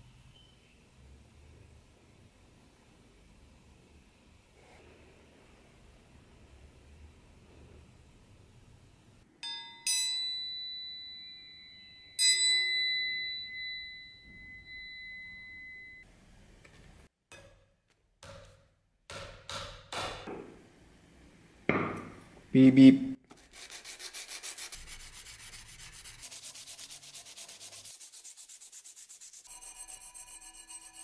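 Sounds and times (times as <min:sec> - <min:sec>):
steel knife blade ringing: 0:09.4 - 0:16.0.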